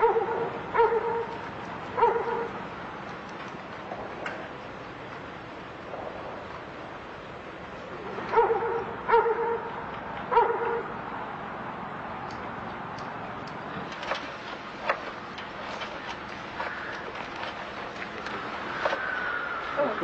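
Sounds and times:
dog barking: 0.0s - 1.3s, 2.0s - 2.6s, 8.3s - 9.7s, 10.3s - 10.9s.

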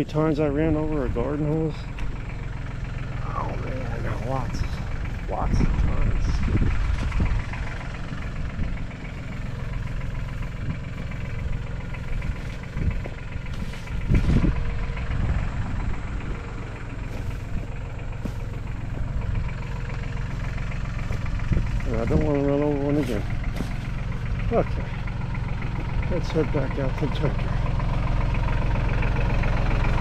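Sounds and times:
diesel tractor engine idling: 0.0s - 30.0s.

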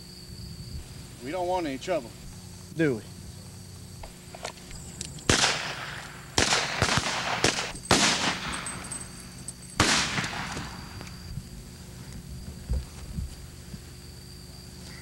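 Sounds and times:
gunshots with echo: 5.3s - 8.7s.

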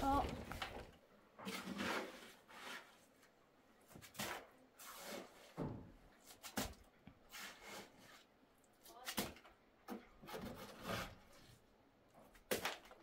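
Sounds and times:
objects knocking and scraping: 0.0s - 3.2s, 9.2s - 11.6s.

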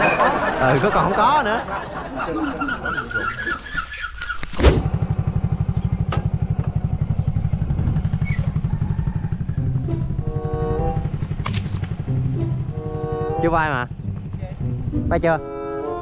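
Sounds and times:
thud: 4.6s - 4.9s
motorcycle engine running: 4.7s - 15.4s.

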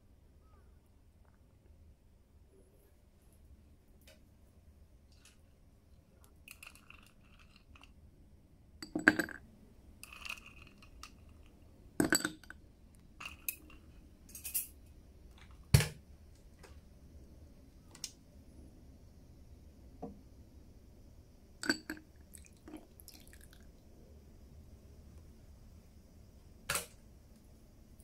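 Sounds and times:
ice tapping against glass: 8.8s - 9.4s, 21.6s - 22.0s
ice cubes clinking in glass: 10.0s - 11.4s, 21.6s - 22.5s.

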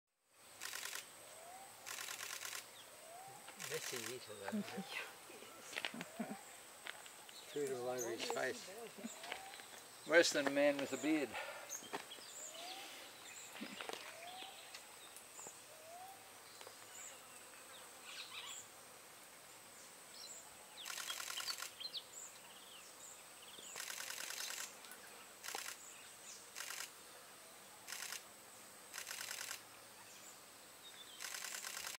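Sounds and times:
high-pitched insect whine: 0.5s - 32.0s
buzzy rattling bursts: 0.6s - 1.1s, 1.8s - 2.7s, 3.6s - 5.0s, 20.8s - 21.8s, 23.8s - 24.8s, 31.2s - 32.0s
bird chirps: 7.2s - 9.8s, 10.7s - 16.2s, 20.2s - 24.7s.

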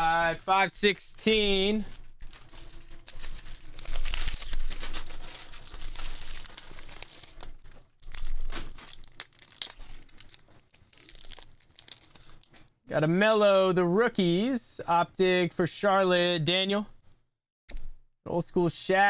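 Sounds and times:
paper envelope rustling: 1.2s - 12.5s
plastic bag crinkling: 1.5s - 12.6s.

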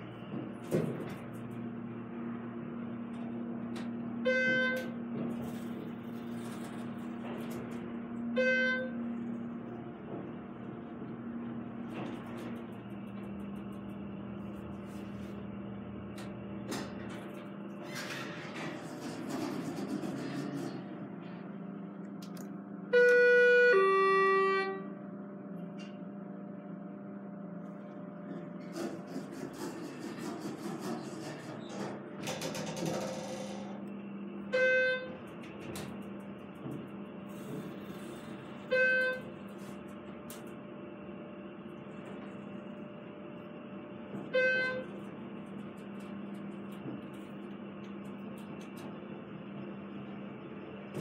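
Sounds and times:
steady low hum: 0.0s - 51.0s
elevator floor beeps: 4.2s - 5.0s, 8.3s - 9.0s, 22.9s - 24.9s, 34.5s - 35.3s, 38.6s - 39.5s, 44.2s - 45.0s.

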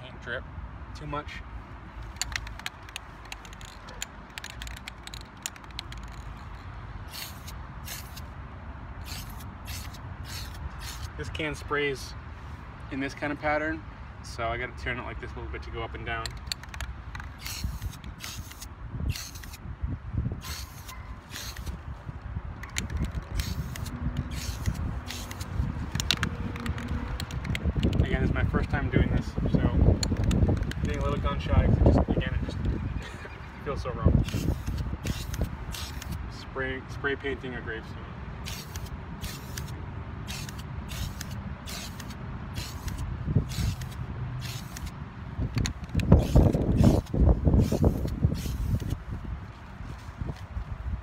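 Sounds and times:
spray can ball rattling: 2.0s - 8.2s, 16.3s - 19.6s, 22.6s - 28.0s, 40.3s - 44.9s
sharp clicks: 2.0s - 8.3s, 16.2s - 19.6s, 22.6s - 29.2s, 29.9s - 31.4s, 34.2s - 36.2s, 38.5s - 49.0s.

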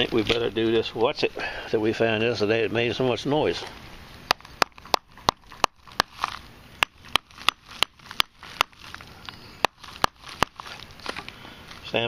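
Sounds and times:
sharp knocks breaking a lump: 4.3s - 11.4s.

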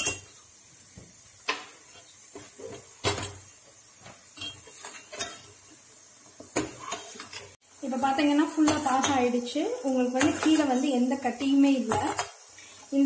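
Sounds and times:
spoon clinking on pot: 0.0s - 0.3s, 4.4s - 5.5s.

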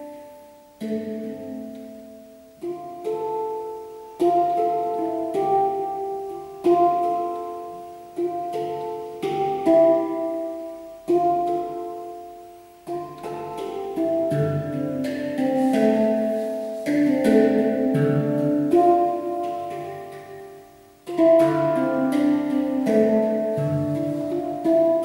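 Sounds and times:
handpan melody: 0.0s - 25.0s.

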